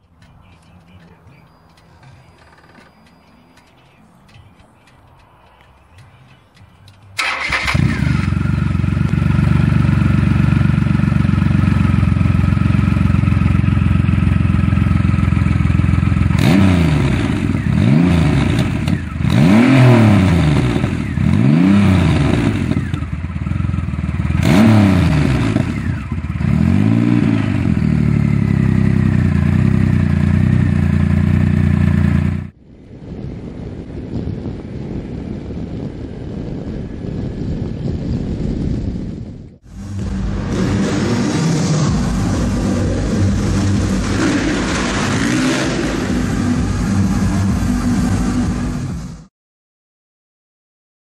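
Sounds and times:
motorcycle engine idling: 0:00.0 - 0:17.8, 0:22.3 - 0:24.5, 0:25.4 - 0:26.6, 0:27.4 - 0:32.5, 0:46.1 - 0:48.9
engine revving in throttle blips: 0:06.5 - 0:32.5, 0:39.6 - 0:49.3
motorcycle engine starting: 0:06.6 - 0:32.5, 0:39.6 - 0:49.3.

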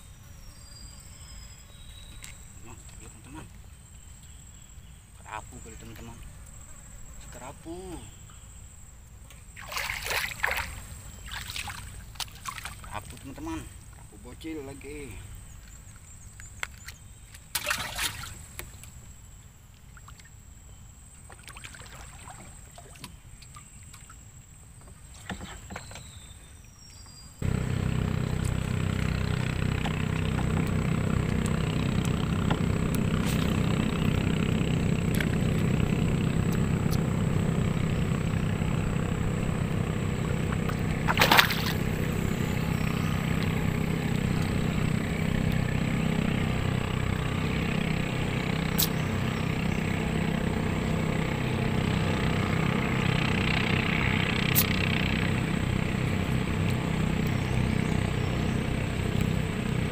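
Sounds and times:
small boat engine running: 0:00.0 - 0:08.4, 0:09.4 - 0:19.0, 0:27.4 - 0:59.9
water lapping: 0:09.5 - 0:14.2, 0:16.7 - 0:18.9, 0:21.2 - 0:24.3, 0:27.4 - 0:59.9.

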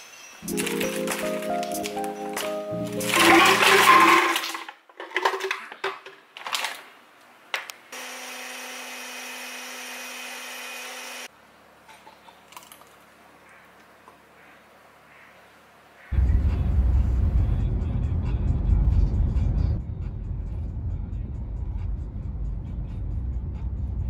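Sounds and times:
berries rattling into glass jar: 0:02.4 - 0:06.8
smoothie pouring into glass: 0:03.1 - 0:04.6
blender motor running: 0:08.0 - 0:11.3.

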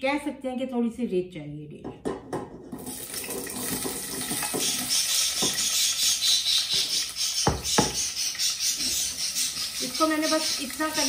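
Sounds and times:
onion sizzling in hot oil: 0:02.8 - 0:11.0
spoon knocking against bowl: 0:06.7 - 0:08.0.

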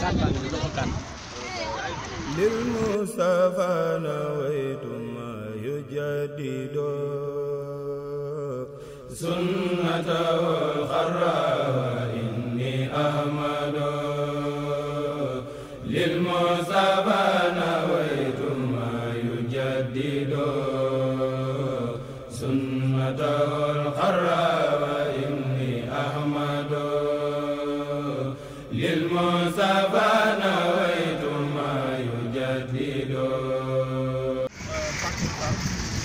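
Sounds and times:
man chanting: 0:02.3 - 0:13.0.

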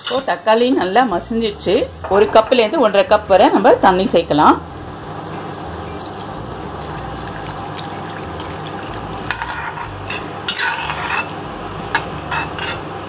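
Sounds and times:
water pouring into pan: 0:04.9 - 0:09.6
ladle scraping pan: 0:05.2 - 0:11.4, 0:12.0 - 0:12.9.

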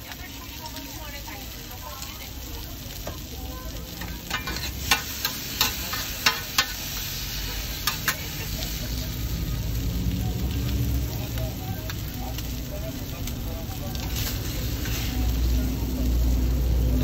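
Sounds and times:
meat sizzling on a griddle: 0:00.0 - 0:17.0.

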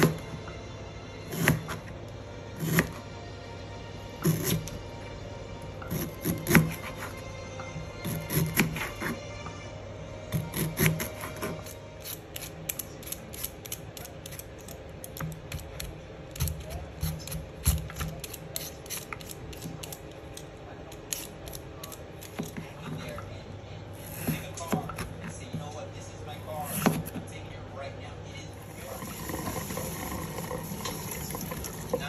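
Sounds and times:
peeler scraping vegetable skin: 0:01.3 - 0:01.9, 0:02.6 - 0:03.0, 0:04.2 - 0:04.8, 0:05.8 - 0:07.2, 0:08.0 - 0:09.2, 0:10.3 - 0:22.8.

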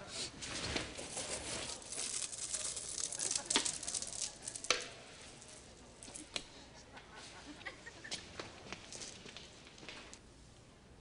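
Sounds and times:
small objects rustling and clicking: 0:00.4 - 0:06.5, 0:08.7 - 0:10.2.

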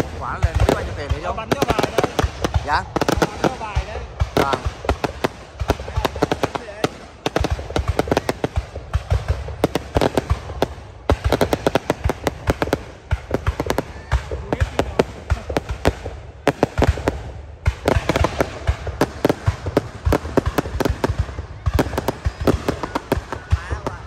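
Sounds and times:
fireworks bangs and crackles: 0:00.0 - 0:24.0.

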